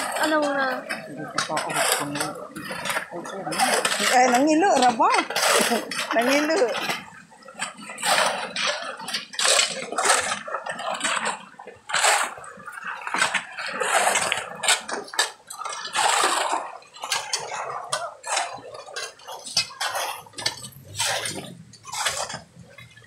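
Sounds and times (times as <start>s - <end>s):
metal shovels scraping gravel: 0.0s - 6.7s, 19.0s - 22.6s
water splashing: 0.0s - 23.0s.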